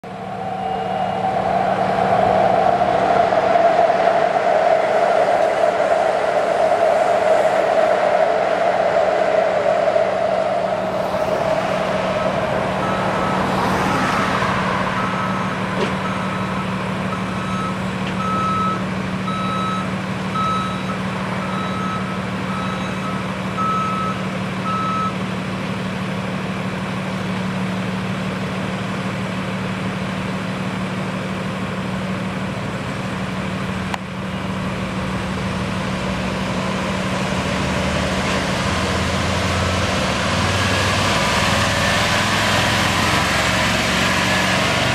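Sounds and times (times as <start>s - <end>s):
loud rush: 0.0s - 18.0s
low hum: 0.0s - 23.6s
street noise: 0.0s - 44.9s
reversing alarm beeping: 0.1s - 25.3s.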